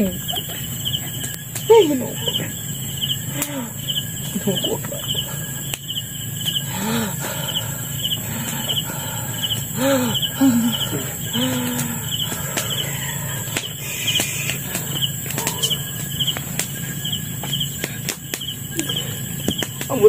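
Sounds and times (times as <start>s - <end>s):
crickets chirping: 0.0s - 20.0s
high insect hum: 0.0s - 20.0s
person's voice: 1.7s - 2.5s, 4.3s - 5.3s.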